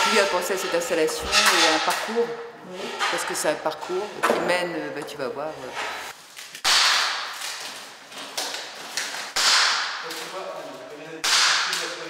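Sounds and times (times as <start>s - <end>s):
plastic wrapping rustling swishes: 5.9s - 6.6s.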